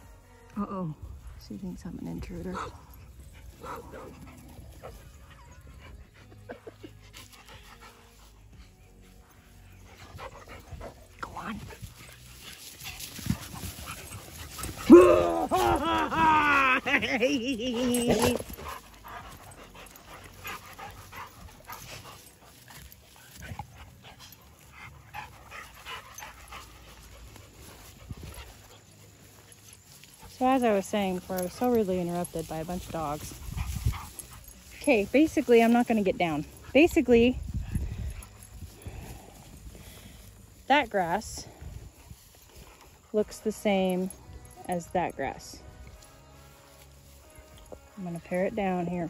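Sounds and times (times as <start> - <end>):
dog panting: 2.4 - 15.6, 16.9 - 40.4.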